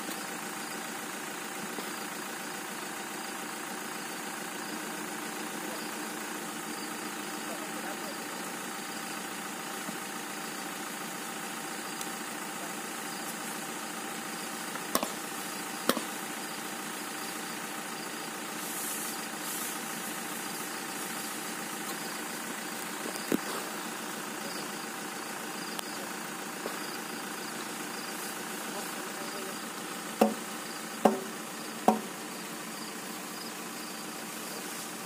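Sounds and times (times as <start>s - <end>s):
van engine idling: 0.0s - 35.0s
sharp knocks: 30.2s - 30.4s, 31.0s - 32.1s.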